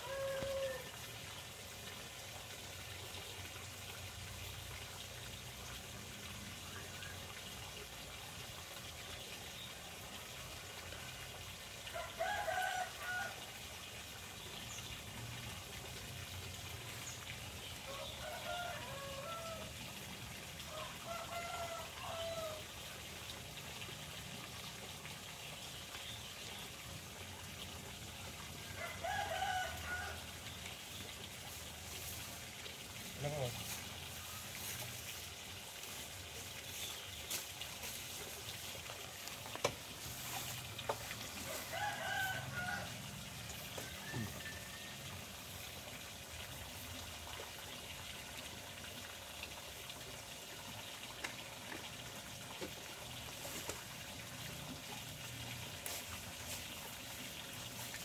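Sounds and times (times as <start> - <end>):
roosters crowing: 0.0 - 0.9, 17.9 - 19.7, 28.8 - 30.3, 41.4 - 45.2
water trickling: 0.0 - 58.0.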